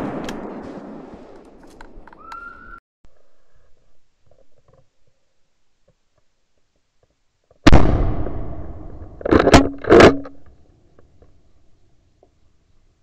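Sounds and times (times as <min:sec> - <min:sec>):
rifle shot with rolling echo: 0:00.0 - 0:02.1, 0:07.7 - 0:09.3.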